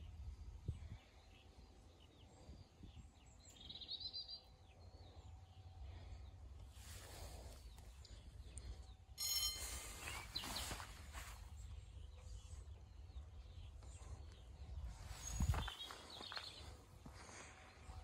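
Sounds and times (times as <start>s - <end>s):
sudden noise with high ringing: 9.2s - 10.6s
birds chirping and singing: 9.6s - 18.0s
low wind rumble: 9.8s - 18.0s.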